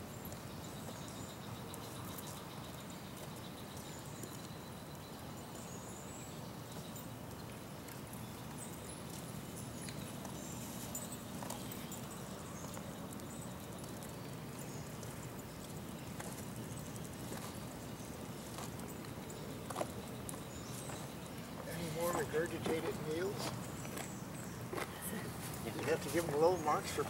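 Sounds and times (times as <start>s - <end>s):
steady outdoor hum: 0.0s - 27.0s.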